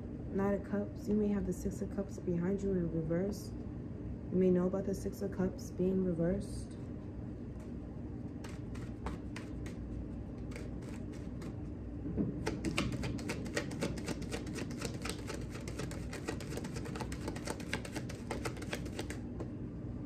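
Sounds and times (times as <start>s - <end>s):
cards being shuffled: 7.6s - 11.7s, 12.4s - 19.3s.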